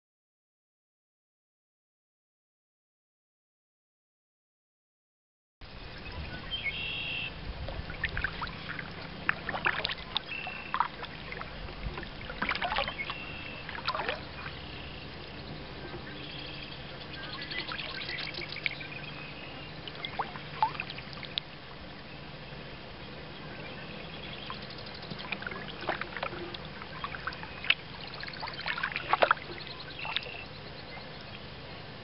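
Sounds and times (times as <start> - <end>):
birds calling: 6.0 - 31.5
paddle splashing in water: 6.5 - 21.9, 23.6 - 31.4.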